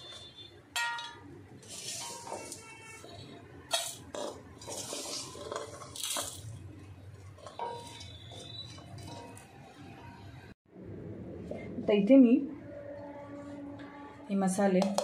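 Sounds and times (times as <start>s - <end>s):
dry seeds sliding and rustling: 1.6s - 2.6s, 4.6s - 6.5s.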